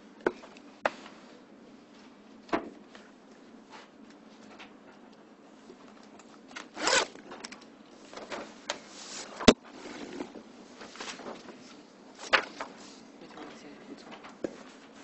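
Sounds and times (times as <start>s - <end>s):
rustling and handling noises: 0.4s - 15.0s
zip pulled: 6.8s - 7.2s.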